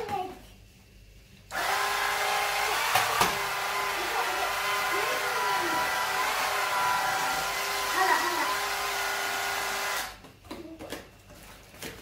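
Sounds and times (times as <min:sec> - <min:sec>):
floor sweeper motor whining: 0:01.5 - 0:10.2.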